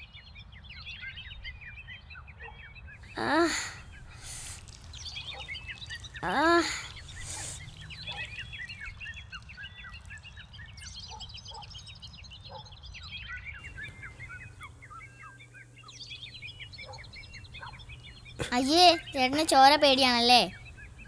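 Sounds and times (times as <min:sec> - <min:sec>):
birds chirping: 0:00.0 - 0:21.0
low steady hum: 0:13.6 - 0:21.0.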